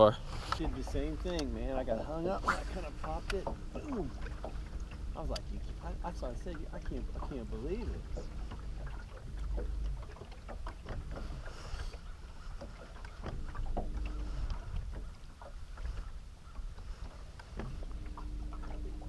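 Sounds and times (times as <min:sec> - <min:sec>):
water lapping at hull: 0:00.0 - 0:19.0
wind rumbling on microphone: 0:00.0 - 0:19.0
faint hum: 0:00.7 - 0:10.4, 0:13.4 - 0:15.1, 0:17.6 - 0:19.0.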